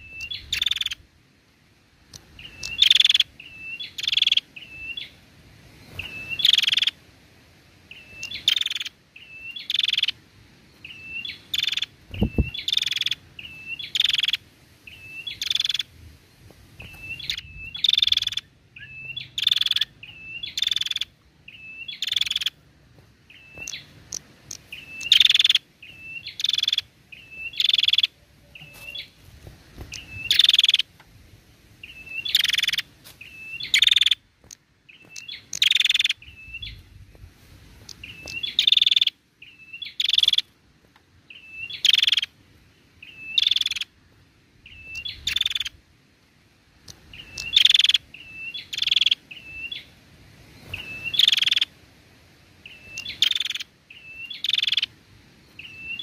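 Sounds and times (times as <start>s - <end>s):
bird calling: 0.0s - 1.0s, 2.3s - 5.2s, 5.8s - 7.0s, 7.9s - 15.9s, 16.8s - 31.0s, 31.8s - 37.2s, 37.8s - 40.6s, 41.2s - 44.0s, 44.6s - 45.8s, 46.9s - 50.0s, 50.6s - 51.8s, 52.6s - 56.0s.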